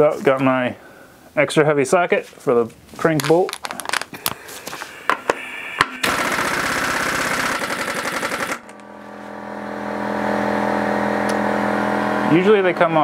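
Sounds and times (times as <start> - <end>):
air compressor motor running: 4.2 - 13.0
air impact wrench hammering: 5.1 - 8.9.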